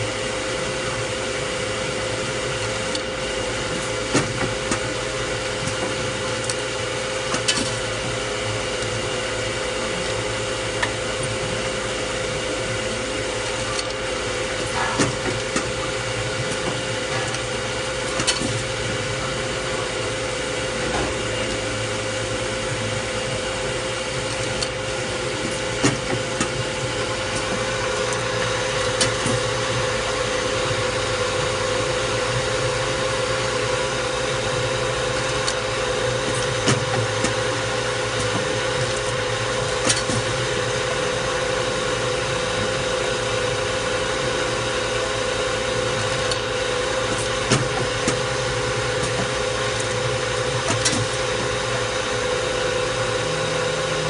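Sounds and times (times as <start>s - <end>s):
machine hum and grinding: 0.0s - 54.0s.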